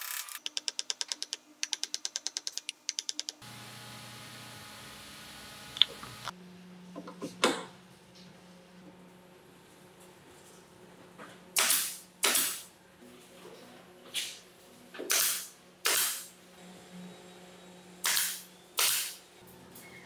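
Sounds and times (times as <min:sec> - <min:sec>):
nail gun firing into wood: 0:11.6 - 0:12.7, 0:15.1 - 0:16.3, 0:18.1 - 0:19.2.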